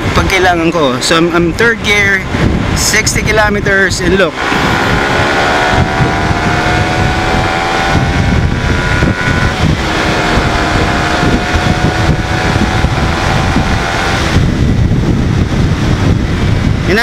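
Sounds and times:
wind rumble on microphone: 0:00.0 - 0:17.0
motorcycle engine accelerating: 0:04.0 - 0:17.0.

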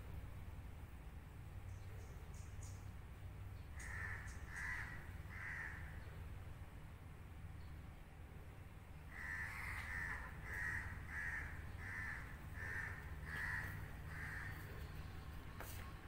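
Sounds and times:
bird harsh crow-like calls: 0:03.7 - 0:06.2, 0:09.0 - 0:15.0.

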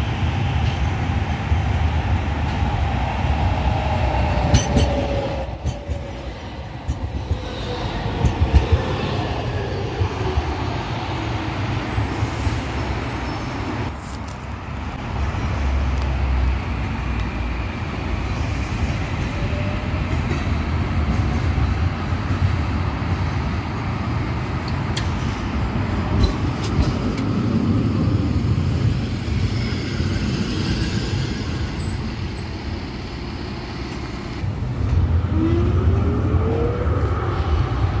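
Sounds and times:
tram running with whine: 0:00.0 - 0:38.0.

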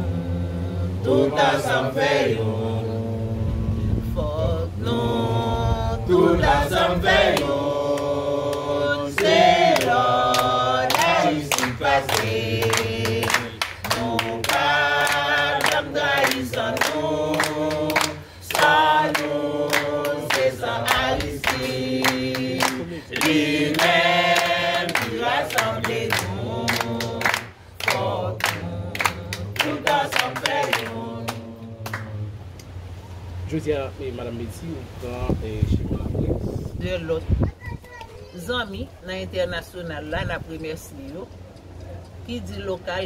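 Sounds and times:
group singing unaccompanied: 0:00.0 - 0:33.0
hand claps: 0:09.2 - 0:32.1.

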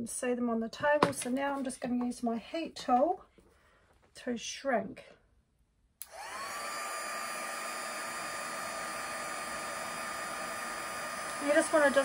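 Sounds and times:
heat tool blowing hot air: 0:06.0 - 0:12.0.

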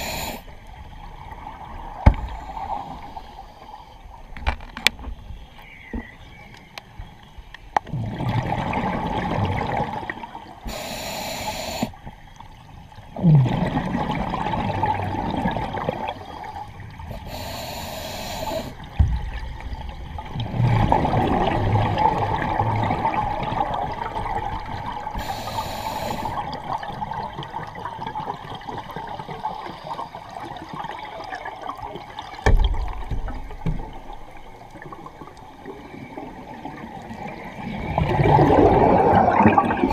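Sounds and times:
regulator hiss of inhalation: 0:00.0 - 0:00.5, 0:10.7 - 0:12.0, 0:17.2 - 0:18.8, 0:25.2 - 0:26.5
bubbles gurgling from diver exhaling: 0:07.9 - 0:10.2, 0:13.1 - 0:16.6, 0:18.5 - 0:29.6, 0:35.6 - 0:39.9.

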